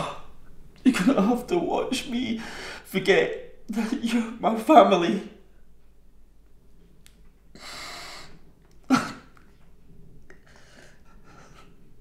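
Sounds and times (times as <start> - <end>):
sharp intake of breath: 2.4 - 2.9, 7.5 - 8.4.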